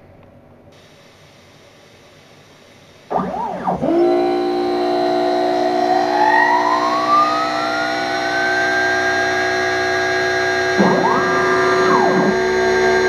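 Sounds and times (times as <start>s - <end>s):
steady multi-tone hum: 0.0s - 13.0s
router spindle whine: 3.0s - 13.0s.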